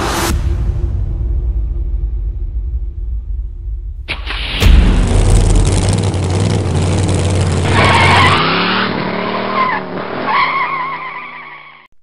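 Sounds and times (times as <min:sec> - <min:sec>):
car engine rumble: 0:01.8 - 0:10.9
tyres squealing: 0:07.6 - 0:11.9.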